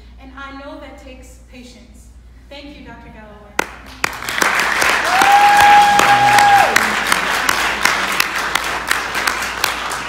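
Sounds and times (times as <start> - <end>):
audience applause: 4.0 - 10.0.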